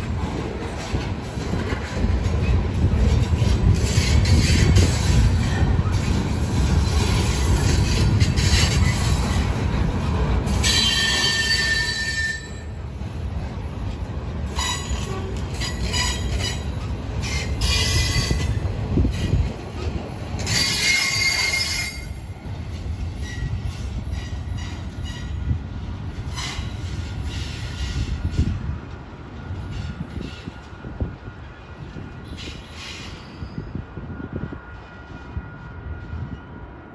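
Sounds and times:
freight train wheels rumbling: 0.0 - 36.9
wheel squeal: 10.6 - 12.7, 20.5 - 22.1.

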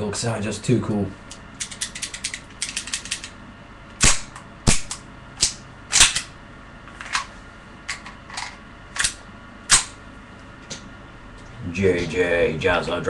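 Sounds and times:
airsoft pistol shots: 4.0 - 6.3.

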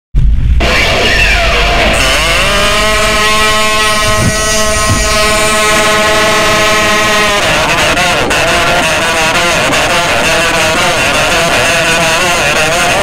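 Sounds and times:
kazoo buzzing: 0.6 - 13.0.

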